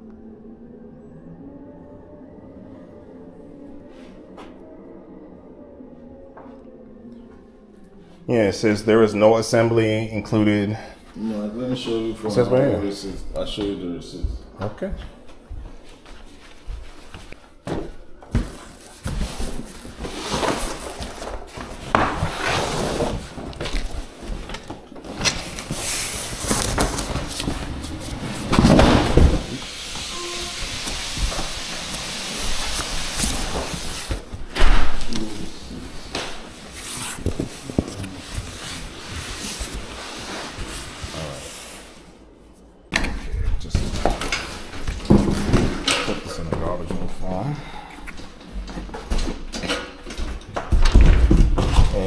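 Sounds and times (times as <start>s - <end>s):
cardboard rubbing and scraping: 36.5s - 41.8s.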